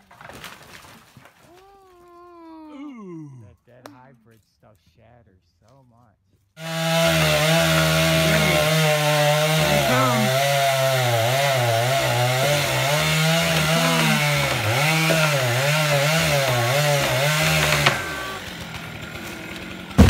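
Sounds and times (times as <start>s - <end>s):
chainsaw cutting wood: 6.6s - 20.0s.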